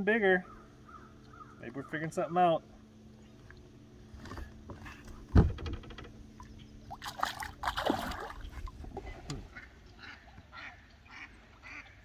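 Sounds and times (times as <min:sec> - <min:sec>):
low thump against boat: 0:04.2 - 0:06.2
fish splashing into water: 0:06.9 - 0:08.7.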